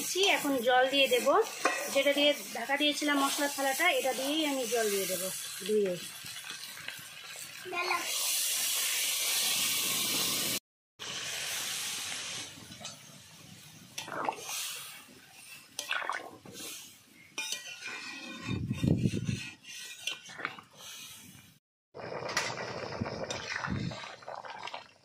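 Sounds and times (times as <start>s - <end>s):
water hissing in hot pan: 0.0s - 17.3s
metal ladle scraping pan: 0.2s - 2.3s, 17.4s - 21.1s.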